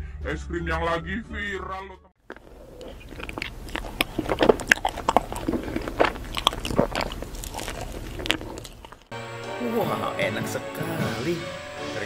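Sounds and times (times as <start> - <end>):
person chewing ice cream: 2.2 - 9.1.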